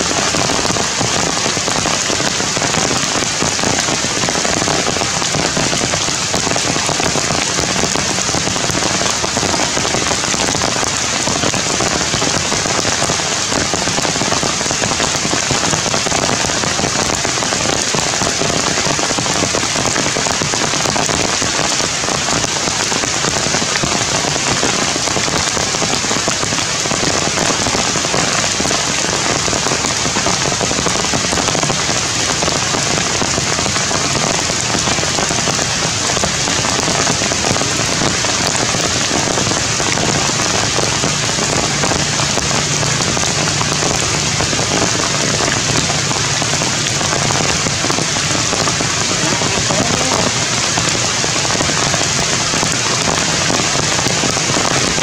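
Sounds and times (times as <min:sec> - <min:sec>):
steady rain falling: 0:00.0 - 0:55.0.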